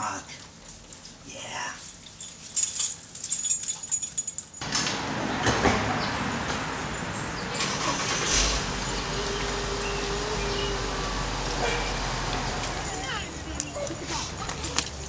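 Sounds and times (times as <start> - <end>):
metallic jingling and clicking: 1.8 - 4.9, 6.4 - 10.0, 12.2 - 15.0
street traffic: 4.6 - 15.0.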